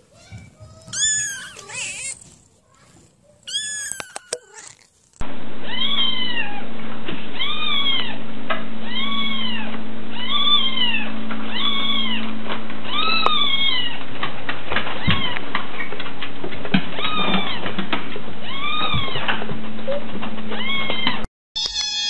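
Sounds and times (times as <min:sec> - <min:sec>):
kittens meowing: 0:00.8 - 0:02.3, 0:03.4 - 0:04.9, 0:10.2 - 0:12.2, 0:12.9 - 0:14.0, 0:20.6 - 0:22.0
steady low hum: 0:05.1 - 0:16.9.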